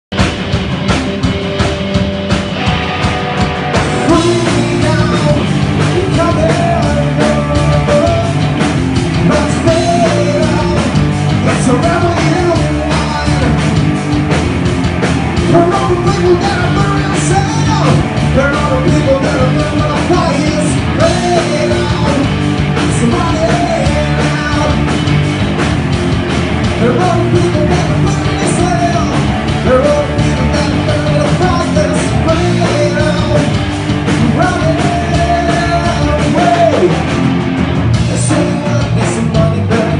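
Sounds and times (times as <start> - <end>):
live rock band playing: 0.1 - 39.9
man singing: 4.0 - 13.8, 15.4 - 25.0, 26.7 - 37.0, 37.9 - 39.9.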